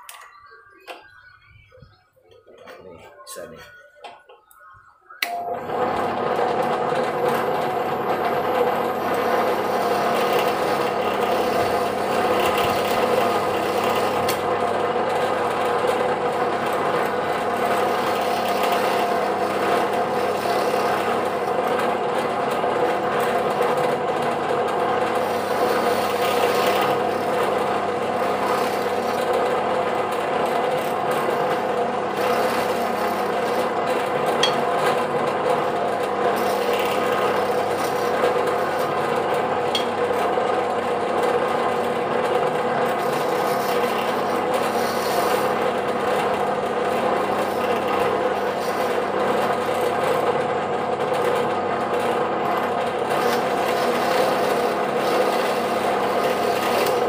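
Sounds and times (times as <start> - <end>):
drill press motor: 5.2 - 57.0
drill bit rasping into wood: 7.2 - 39.9, 41.8 - 50.2, 52.6 - 57.0.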